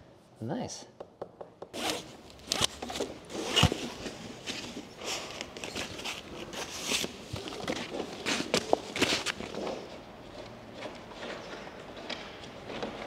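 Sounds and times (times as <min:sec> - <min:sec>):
fabric strap rasping: 0:01.7 - 0:04.0.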